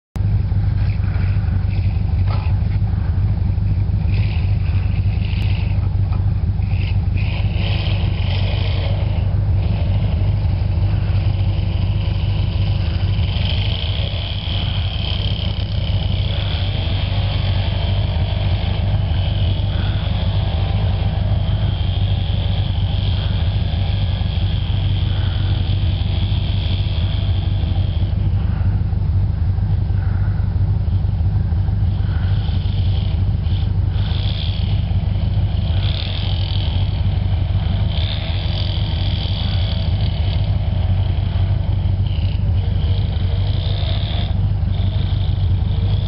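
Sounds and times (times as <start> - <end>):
jeep engine rumbling: 0.1 - 46.0.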